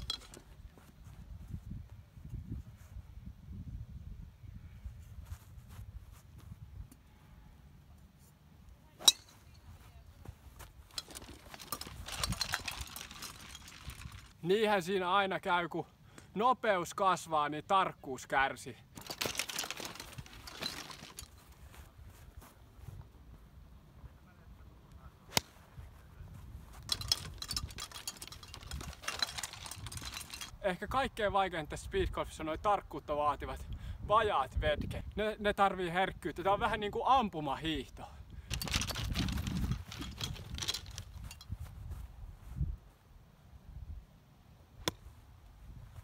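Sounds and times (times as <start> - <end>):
golf clubs clattering in bag: 0.0 - 0.5, 10.7 - 14.4, 18.9 - 21.6, 26.7 - 30.6, 38.5 - 41.6
golf club striking ball: 9.0 - 9.4.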